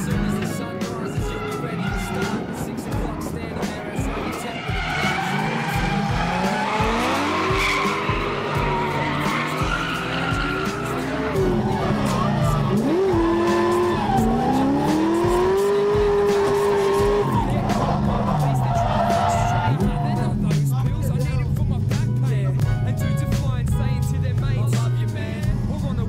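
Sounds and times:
car engines revving: 0:00.0 - 0:22.6
background music with beat: 0:00.0 - 0:26.0
tyres skidding and squealing: 0:00.0 - 0:26.0.

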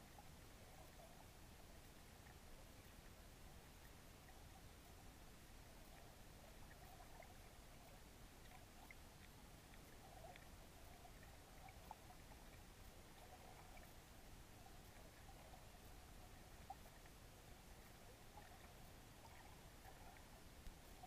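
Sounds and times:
faint steady hiss: 0:00.0 - 0:21.0
tiny faint ticks: 0:00.0 - 0:21.0.

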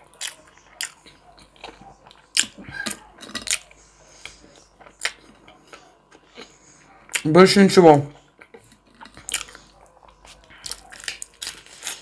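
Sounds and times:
person chewing crispy chicken: 0:00.0 - 0:07.3, 0:08.2 - 0:12.0.

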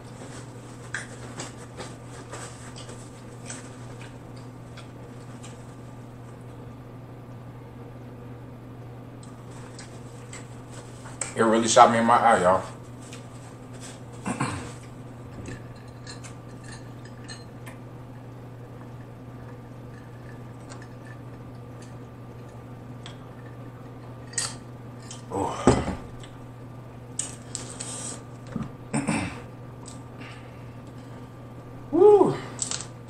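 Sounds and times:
crab leg cracking and snapping: 0:32.5 - 0:33.0.

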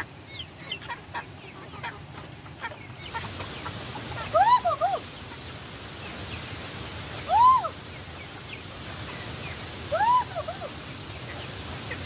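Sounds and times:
poultry calling: 0:00.0 - 0:05.5.

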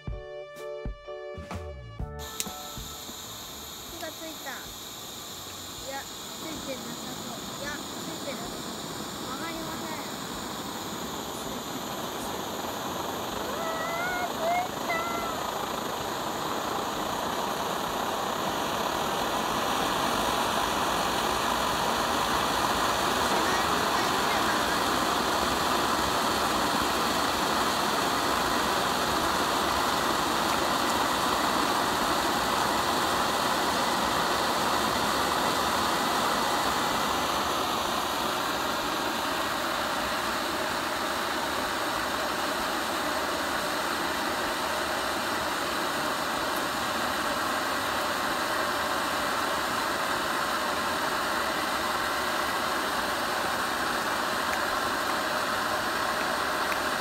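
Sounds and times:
camping stove burner hissing: 0:02.2 - 0:57.0.

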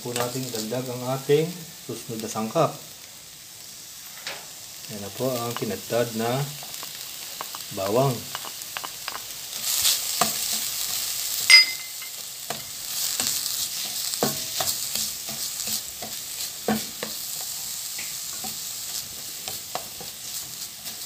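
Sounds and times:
food sizzling in oil: 0:00.0 - 0:21.0
metal clink ringing: 0:11.5 - 0:12.2.

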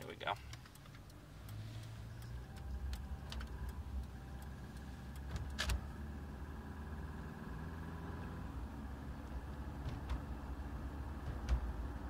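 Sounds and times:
sharp engine clicks: 0:00.0 - 0:06.0
car engine drone from inside: 0:00.0 - 0:12.0.

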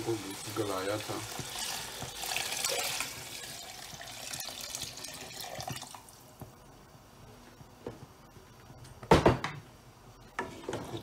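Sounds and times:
stock pouring and splashing: 0:00.3 - 0:06.1.

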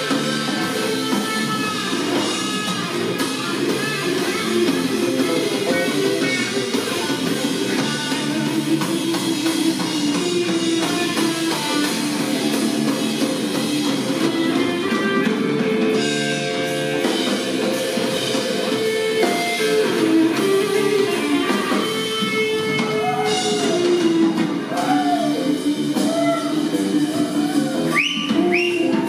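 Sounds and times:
rock band playing instrumental: 0:00.0 - 0:29.0.

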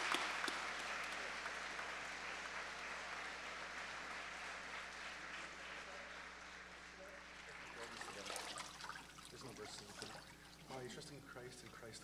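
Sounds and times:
congregation applauding: 0:00.0 - 0:08.9.

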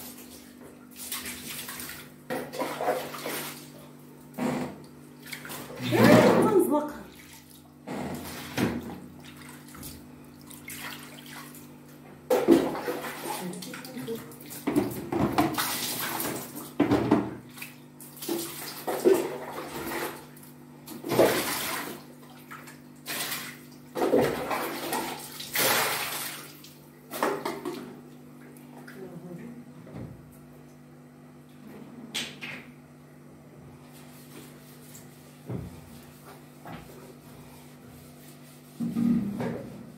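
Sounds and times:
water splashing on tiled floor: 0:00.0 - 0:03.8, 0:08.3 - 0:11.7, 0:12.4 - 0:16.8, 0:17.5 - 0:27.8.

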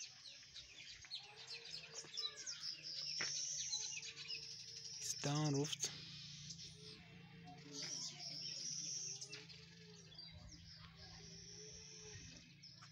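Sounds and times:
birds chirping: 0:00.0 - 0:12.9.

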